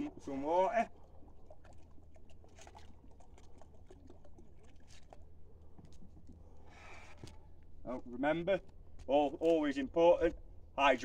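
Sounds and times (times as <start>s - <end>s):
water pouring into plastic tubs: 0.0s - 6.0s.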